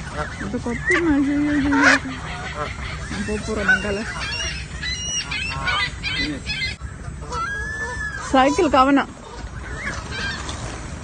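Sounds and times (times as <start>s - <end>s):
geese honking: 0.0s - 10.9s.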